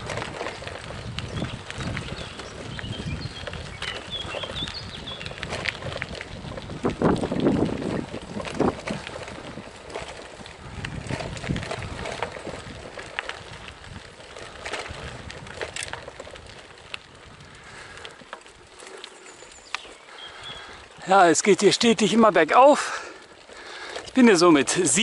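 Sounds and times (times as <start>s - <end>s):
bike knocks and rattles: 0.0s - 16.9s
wind on microphone: 0.0s - 18.6s
bicycle tyres crunching gravel: 0.0s - 25.0s.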